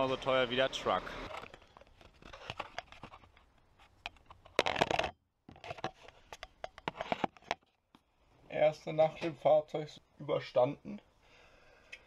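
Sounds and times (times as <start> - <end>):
camera handling clicks and scratches: 1.3 - 7.8
camera handling rustle: 1.3 - 7.8.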